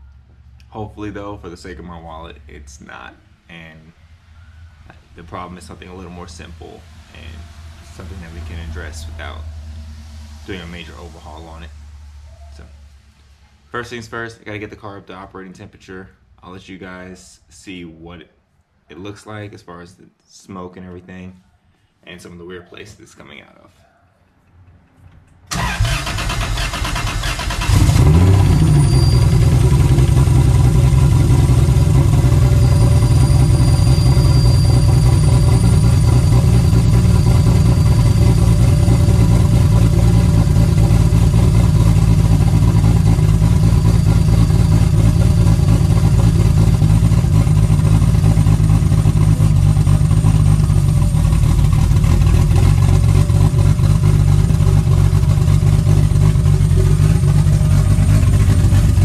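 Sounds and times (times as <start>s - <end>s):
car engine idling: 0.0s - 13.9s, 25.5s - 59.0s
starter cranking engine: 25.5s - 59.0s.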